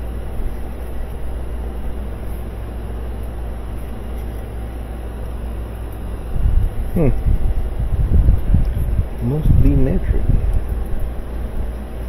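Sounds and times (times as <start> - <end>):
low rumble: 6.2 - 11.8.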